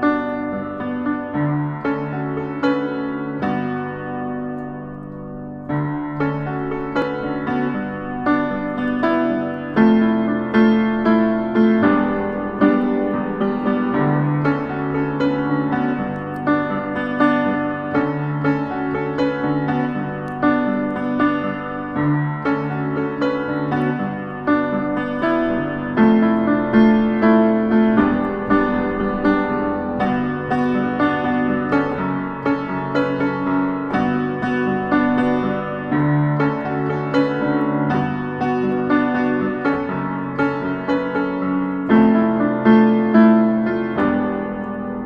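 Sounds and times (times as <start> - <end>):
solo piano piece: 0.0 - 45.0.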